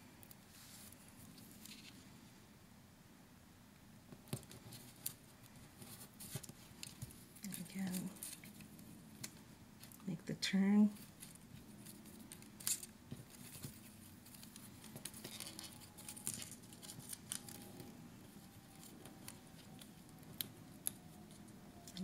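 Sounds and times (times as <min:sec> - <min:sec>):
small clicks and rustles: 0:00.2 - 0:02.1, 0:04.1 - 0:10.1, 0:10.9 - 0:22.0
paper backing crinkling: 0:04.3 - 0:10.1, 0:10.8 - 0:22.0.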